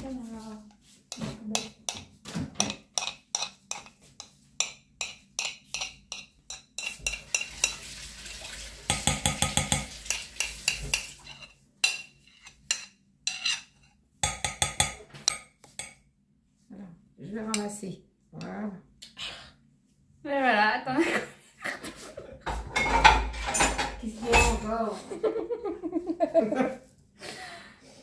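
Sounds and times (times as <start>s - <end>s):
metal whisk clinking on plate: 4.6s - 7.8s, 8.9s - 16.0s.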